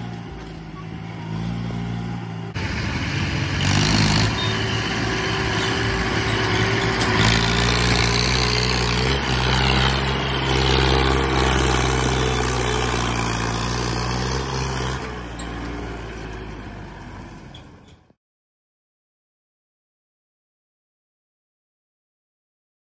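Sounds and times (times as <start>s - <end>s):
tractor diesel engine running: 0.0s - 18.1s.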